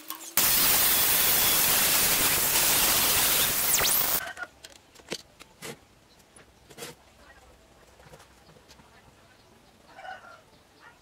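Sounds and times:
angle grinder cutting steel: 0.4s - 4.2s.

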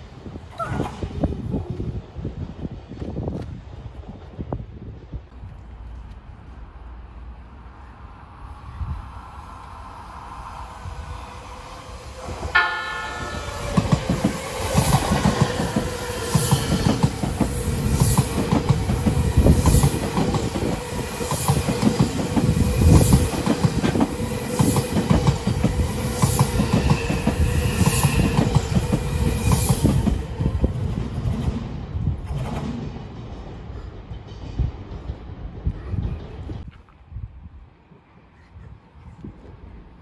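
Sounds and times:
train rumbling past: 0.0s - 40.0s.

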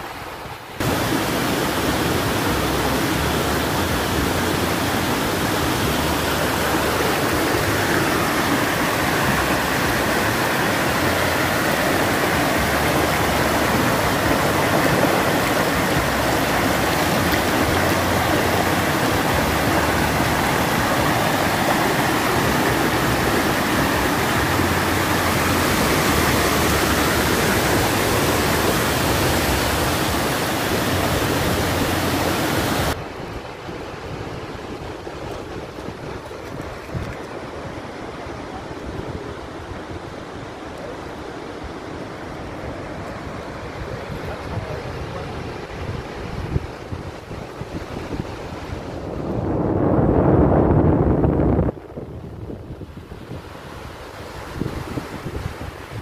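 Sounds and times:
surf washing onto beach: 0.0s - 56.0s
wind buffeting microphone: 0.8s - 40.4s, 42.3s - 56.0s.

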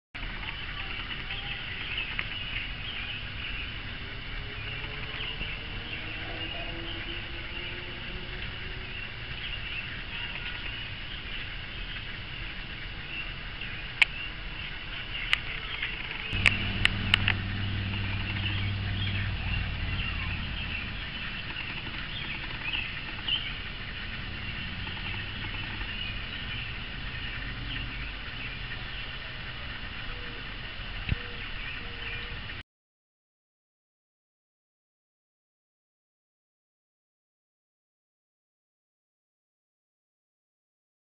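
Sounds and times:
faint chirping: 14.2s - 29.2s
low hum: 16.2s - 29.2s.

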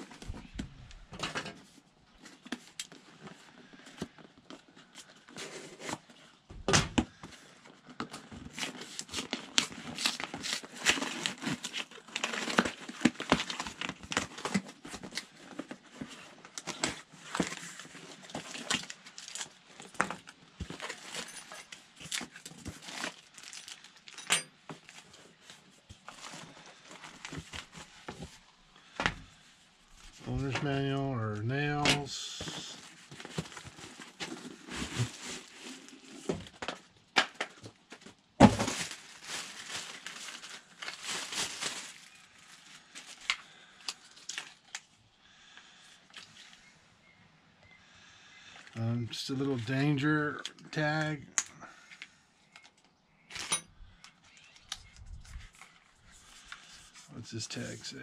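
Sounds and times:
cardboard crinkling and tearing: 7.2s - 24.2s, 31.8s - 44.8s.

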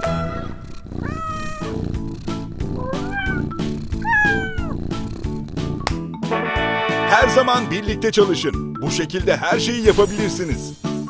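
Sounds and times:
cat meowing: 0.0s - 5.4s
upbeat background music: 1.8s - 11.0s.

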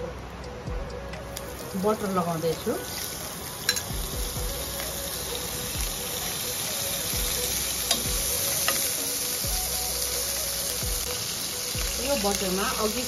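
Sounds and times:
butter sizzling in a pan: 1.4s - 13.0s.

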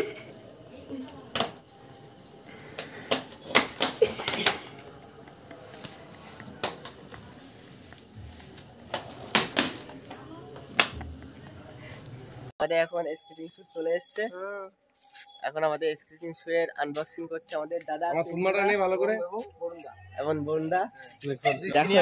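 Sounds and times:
crickets chirping: 0.0s - 12.6s.

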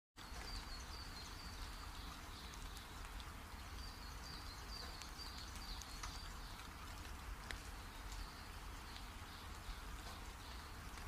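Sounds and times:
bird chirping: 0.2s - 11.0s
soft ticks: 4.8s - 11.0s.

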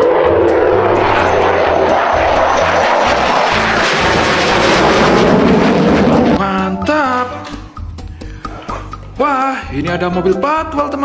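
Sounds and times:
jet roar flying past: 0.0s - 7.6s
low background music: 0.0s - 11.0s.

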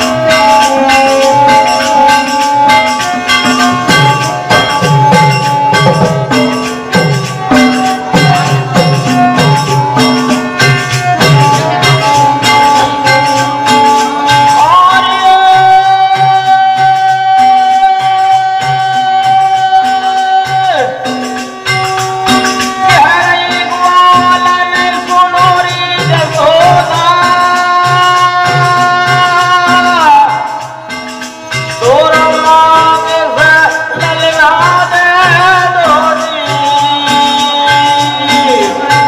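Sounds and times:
person singing long sliding notes: 0.0s - 21.3s
hand drum beat: 0.0s - 39.0s
harmonium: 0.0s - 39.0s
jingling rattle percussion: 0.0s - 39.0s.

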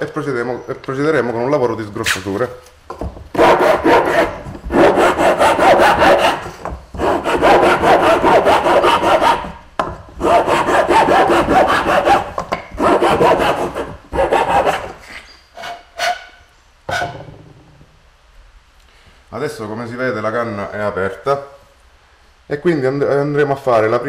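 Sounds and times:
metal file rasping inside cane: 10.2s - 17.2s.

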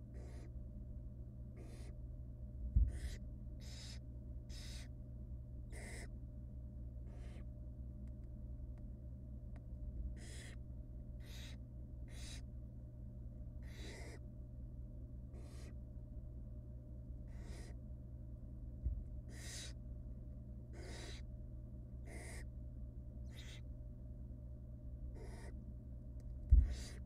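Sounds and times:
steady low hum: 0.0s - 27.0s
owl nestlings hissing: 0.1s - 0.5s, 1.6s - 2.0s, 2.9s - 4.9s, 5.7s - 6.1s, 7.1s - 7.5s, 10.2s - 10.6s, 11.2s - 12.4s, 13.6s - 14.2s, 15.3s - 15.8s, 17.3s - 17.8s, 19.2s - 19.8s, 20.7s - 21.3s, 22.0s - 22.5s, 23.3s - 23.6s, 25.2s - 25.6s, 26.6s - 27.0s.

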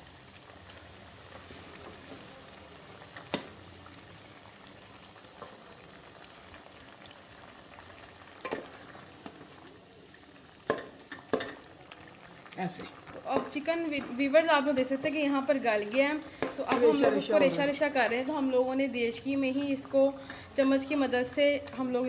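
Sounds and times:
chicken simmering in a pot: 0.0s - 22.0s
wooden spoon knocking a pot: 10.7s - 11.6s, 13.3s - 13.7s, 16.4s - 17.3s.

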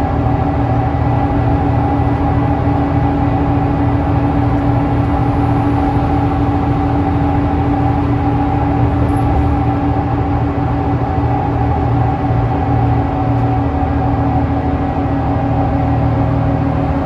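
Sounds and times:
diesel engine drone: 0.0s - 17.0s
steady whine: 0.0s - 17.0s
tyre and road rumble: 3.4s - 13.0s.

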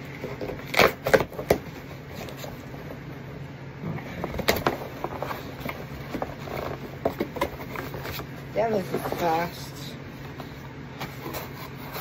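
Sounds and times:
low steady hum: 0.0s - 12.0s
packing tape and cardboard ripping: 0.2s - 2.5s.

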